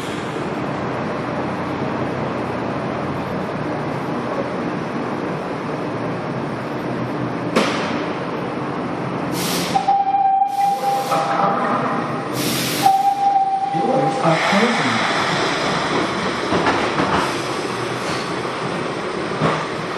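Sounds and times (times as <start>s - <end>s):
subway train running: 0.0s - 19.9s
air hissing: 9.3s - 9.8s, 12.3s - 13.2s
steady high tone: 9.8s - 15.0s.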